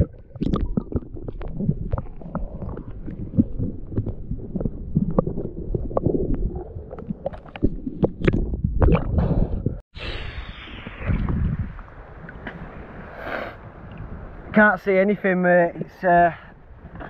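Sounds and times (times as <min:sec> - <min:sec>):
water splashing: 0:00.0 - 0:09.3
muffled underwater rumbling: 0:00.0 - 0:12.8.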